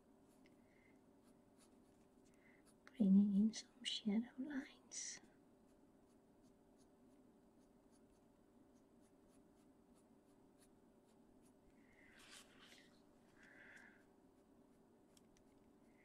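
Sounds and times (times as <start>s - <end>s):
pencil scratching on paper: 1.2s - 2.0s, 7.6s - 11.6s.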